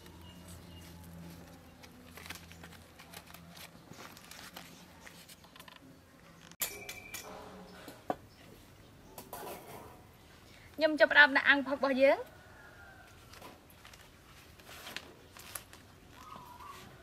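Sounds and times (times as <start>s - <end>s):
banana leaves rustling and crinkling: 0.0s - 5.8s, 13.0s - 17.0s.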